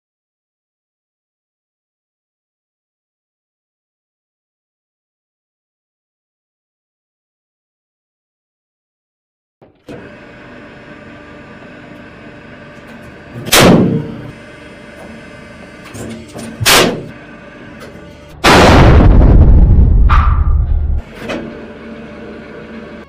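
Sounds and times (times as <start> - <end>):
hydraulic press humming: 9.6 - 18.9, 20.2 - 23.0
cartridges going off with bangs: 16.6 - 17.1
loud blast noise: 16.6 - 17.2, 18.3 - 21.0.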